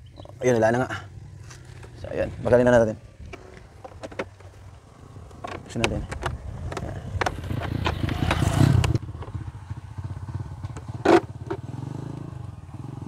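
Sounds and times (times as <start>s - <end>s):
motorcycle engine running: 0.0s - 13.0s
plastic panels clicking and scraping: 3.2s - 9.3s.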